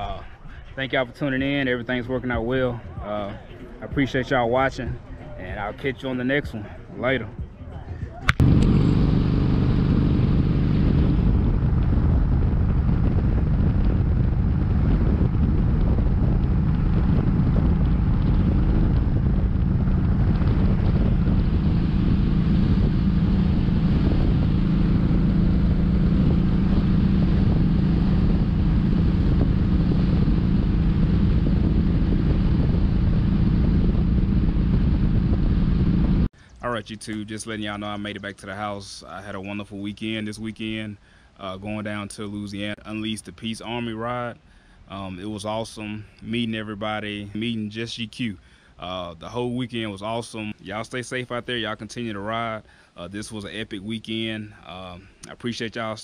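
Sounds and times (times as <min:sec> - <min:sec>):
wind rushing over microphone: 0:00.0 - 0:36.8
motorcycle engine cruising: 0:08.3 - 0:36.3.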